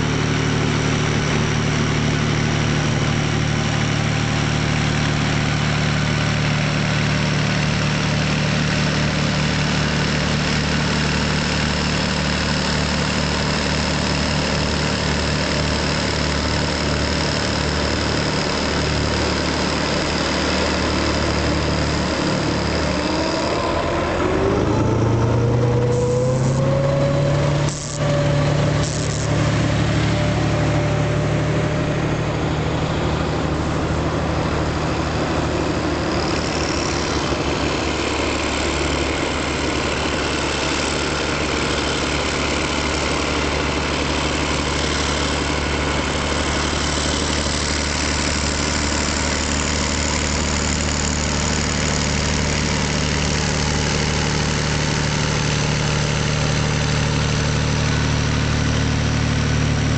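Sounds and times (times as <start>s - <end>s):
tractor diesel engine running: 0.0s - 59.9s
short rising whine: 20.6s - 46.8s.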